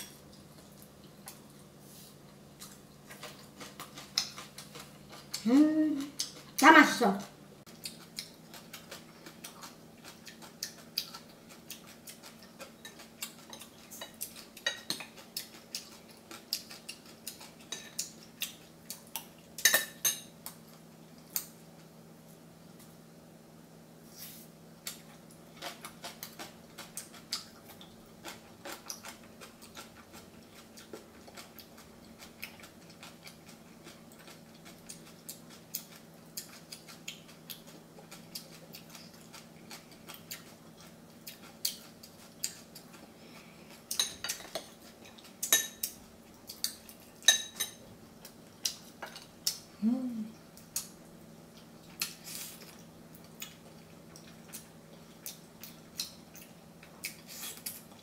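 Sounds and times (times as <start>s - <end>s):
faint steady hum: 0.0s - 58.0s.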